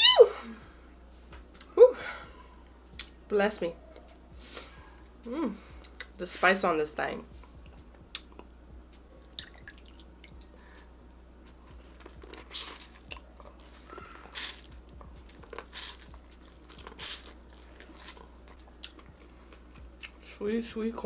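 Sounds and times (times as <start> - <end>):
crunching bites of corn: 15.4 - 19.1.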